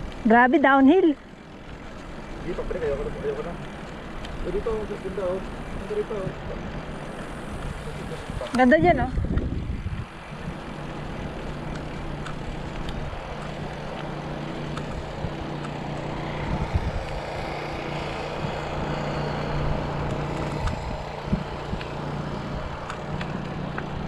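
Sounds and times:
bicycle tyre noise: 0:00.0 - 0:24.0
low hum: 0:00.0 - 0:24.0
wind on microphone: 0:05.6 - 0:24.0.

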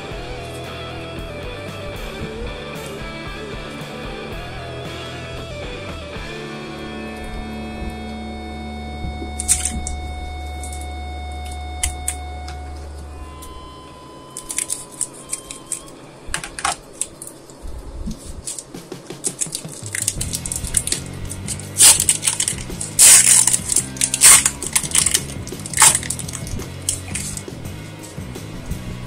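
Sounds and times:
foil wrapper crinkling: 0:09.1 - 0:12.2, 0:14.4 - 0:27.5
scissors snipping foil: 0:09.3 - 0:10.9, 0:14.4 - 0:17.3, 0:18.4 - 0:28.1.

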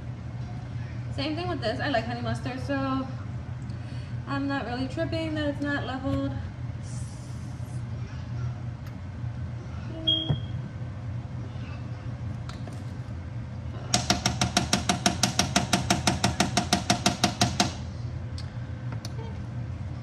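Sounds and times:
steady low hum: 0:00.0 - 0:20.0
utensil knocking against a pan: 0:13.9 - 0:17.8.

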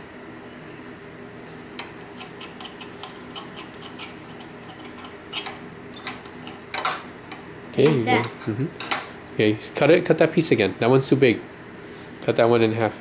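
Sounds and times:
low steady hum: 0:00.0 - 0:13.0
knife and fork scraping a plate: 0:01.9 - 0:06.6.

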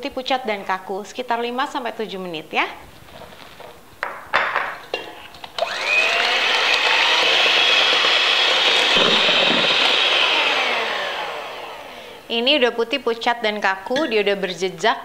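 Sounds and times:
electric hand mixer whining: 0:05.6 - 0:12.3.

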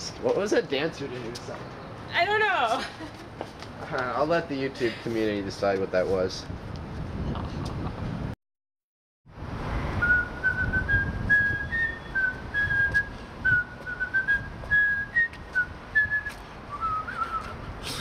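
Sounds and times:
man whistling a tune: 0:10.0 - 0:17.6.

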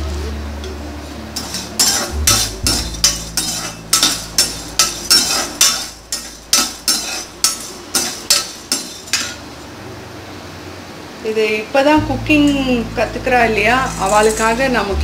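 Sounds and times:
metal spatula scraping spices: 0:01.3 - 0:09.4, 0:13.7 - 0:14.8.

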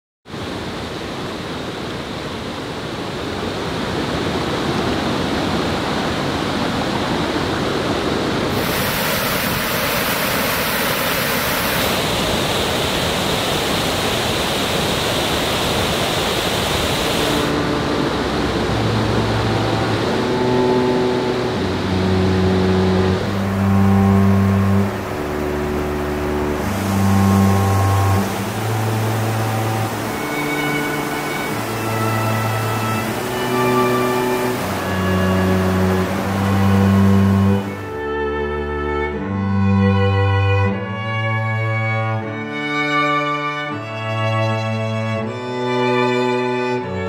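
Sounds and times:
waterfall rushing: 0:00.3 - 0:38.6
slow held music notes: 0:17.3 - 0:47.0.

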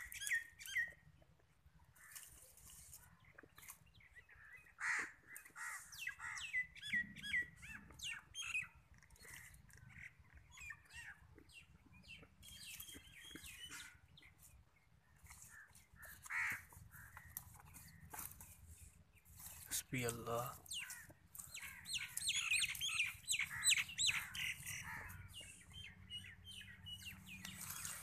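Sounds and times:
small birds chirping: 0:00.0 - 0:28.0
rustling of dry twigs: 0:01.9 - 0:04.2, 0:12.2 - 0:25.4, 0:27.0 - 0:28.0.

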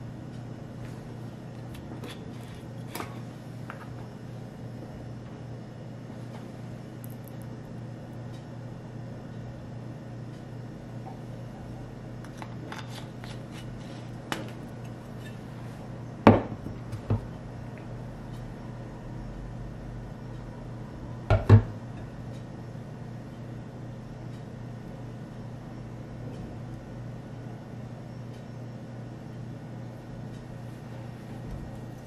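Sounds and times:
steady low hum: 0:00.0 - 0:32.0
bottles knocking on countertop: 0:21.3 - 0:21.7.

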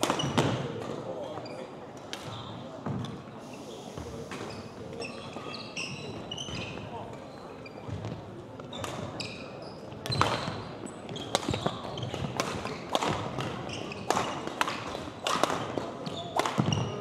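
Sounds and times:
shoes squeaking on gym floor: 0:00.0 - 0:15.0, 0:15.6 - 0:17.0
rackets striking shuttlecock: 0:11.3 - 0:17.0.

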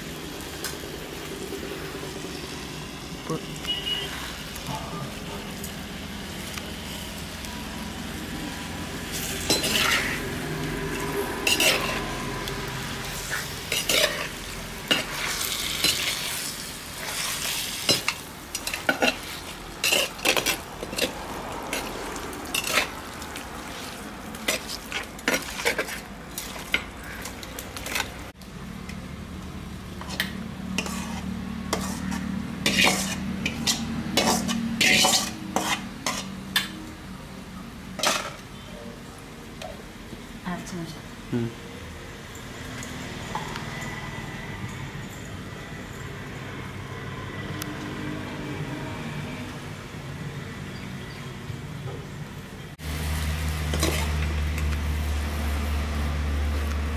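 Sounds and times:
metal ladle scraping a pan: 0:09.1 - 0:12.2, 0:13.0 - 0:26.9, 0:30.0 - 0:36.6, 0:38.0 - 0:38.4, 0:53.7 - 0:54.3
ladle scraping in clay pot: 0:30.0 - 0:36.3.

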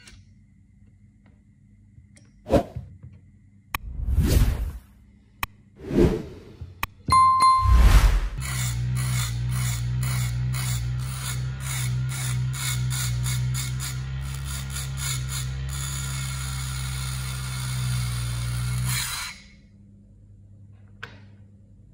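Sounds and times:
mini grinder motor humming: 0:08.4 - 0:19.0
metal strip scraping grinding disc: 0:08.4 - 0:19.5.

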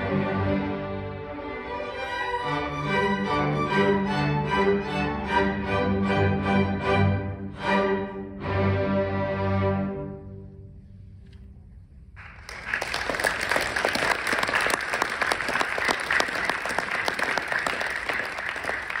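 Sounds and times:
audience applause: 0:12.2 - 0:19.0.

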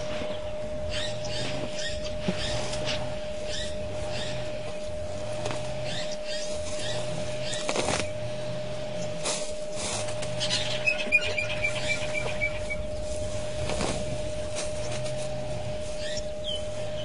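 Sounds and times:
steady hum: 0:00.0 - 0:17.0
elephant tearing at grass: 0:03.8 - 0:10.6, 0:12.6 - 0:16.2
bird short high notes: 0:10.4 - 0:13.0.

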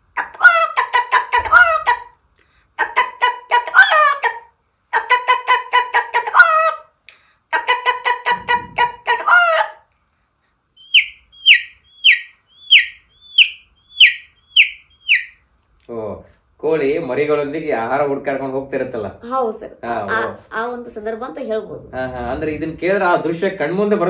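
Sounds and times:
person imitating chick peeps: 0:00.2 - 0:02.1, 0:02.8 - 0:06.9, 0:07.6 - 0:09.8
person imitating hen clucking: 0:00.2 - 0:02.1, 0:02.8 - 0:06.9, 0:07.6 - 0:09.8.

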